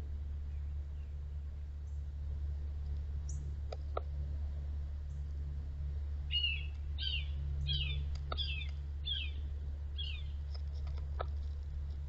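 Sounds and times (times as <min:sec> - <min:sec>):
bird chirping: 0:06.3 - 0:10.4.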